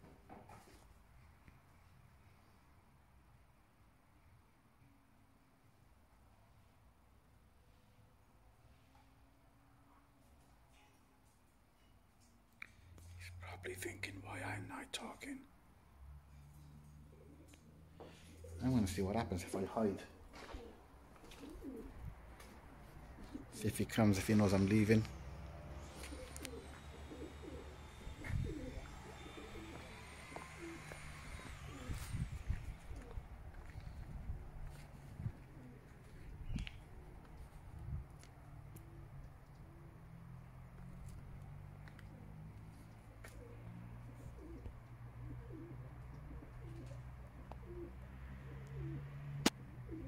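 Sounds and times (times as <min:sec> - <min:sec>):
pigeons cooing: 0:16.6 - 0:40.1, 0:41.1 - 0:50.0
steady low hum: 0:21.9 - 0:38.1.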